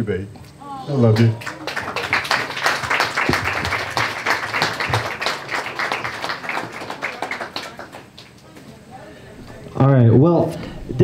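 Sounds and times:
people applauding: 1.0s - 8.6s.

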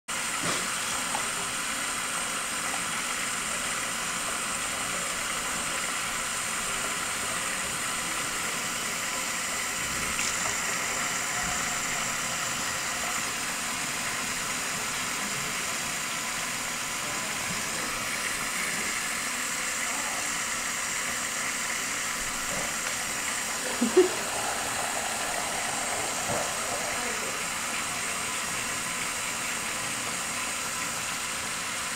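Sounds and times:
tap water running into sink: 0.1s - 31.9s.

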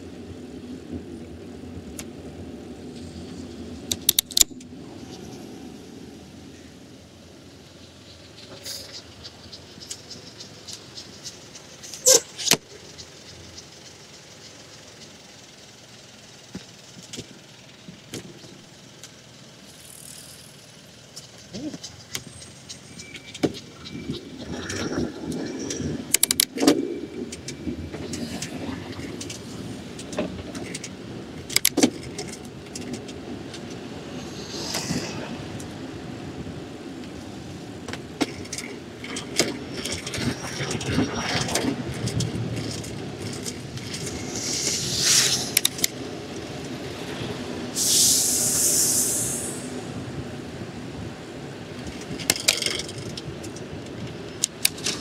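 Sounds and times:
traffic passing: 0.0s - 55.0s
bicycle rattles and clicks: 0.3s - 5.3s, 8.1s - 35.8s, 37.1s - 46.8s, 51.7s - 55.0s
short high hiss: 44.2s - 45.7s, 47.8s - 49.9s.

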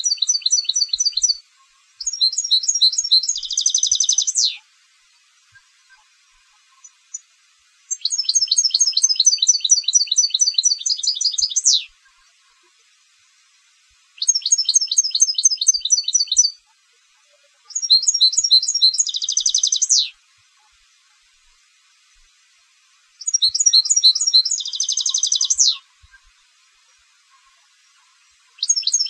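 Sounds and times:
goldfinch twittering song: 0.0s - 4.6s, 7.9s - 12.3s, 14.2s - 16.6s, 17.7s - 20.2s, 23.2s - 26.4s, 27.4s - 29.0s.

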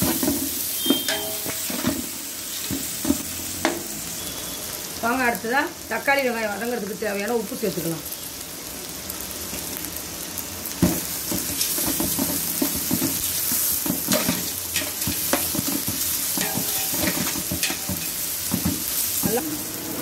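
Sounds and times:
vegetables sizzling in hot fat: 0.0s - 20.0s
metal spatula scraping pot: 13.8s - 19.4s.

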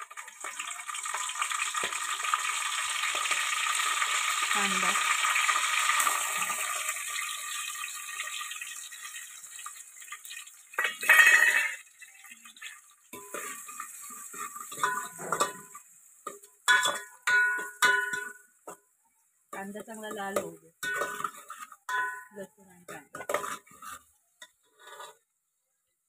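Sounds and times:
onion sizzling in hot oil: 0.0s - 25.3s
spoon scraping a metal pot: 10.8s - 11.8s, 13.1s - 18.4s, 19.8s - 22.3s, 22.9s - 25.3s.

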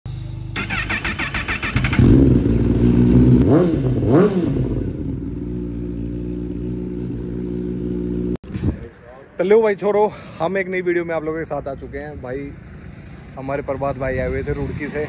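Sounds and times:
motorcycle engine revving and idling: 0.1s - 8.4s
motorcycle starter cranking: 0.6s - 2.4s.

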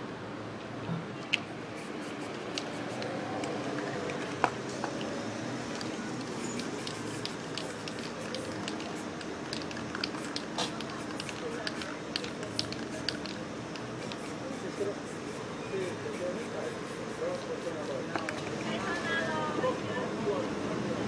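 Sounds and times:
spray can hissing: 1.7s - 3.6s, 6.2s - 18.0s
sharp clicks: 5.7s - 14.4s.

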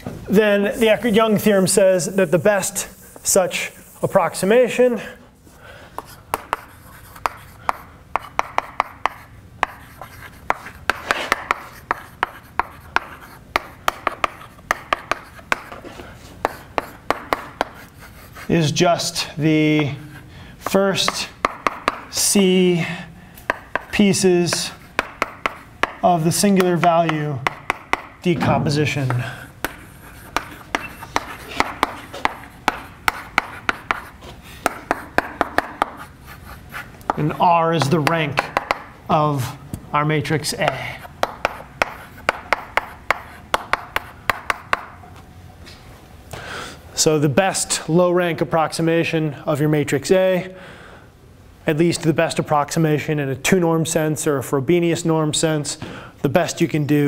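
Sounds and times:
chalk scratching: 0.7s - 4.8s, 6.0s - 22.4s, 23.4s - 28.2s, 28.9s - 38.9s, 40.3s - 45.0s
chalk tapping on blackboard: 0.9s - 4.5s, 5.9s - 18.8s, 20.6s - 22.4s, 23.4s - 28.3s, 28.9s - 38.9s, 40.5s - 45.0s.

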